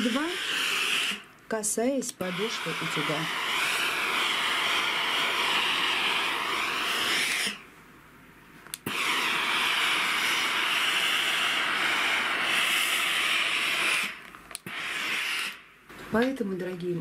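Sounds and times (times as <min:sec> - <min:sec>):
steam iron hissing: 0:00.0 - 0:01.3, 0:02.0 - 0:07.7, 0:08.8 - 0:15.7.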